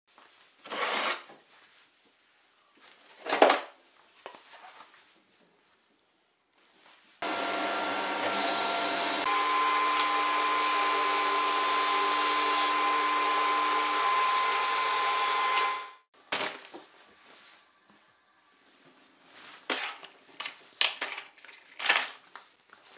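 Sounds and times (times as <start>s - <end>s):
table saw running: 7.2s - 16.1s.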